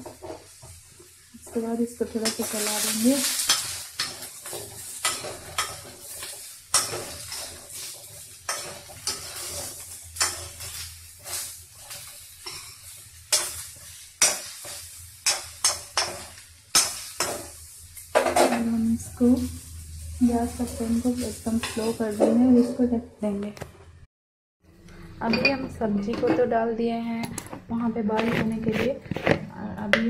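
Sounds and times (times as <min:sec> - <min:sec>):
oil sizzling: 0:00.0 - 0:22.6
metal spatula scraping a wok: 0:02.1 - 0:23.0, 0:28.1 - 0:29.6.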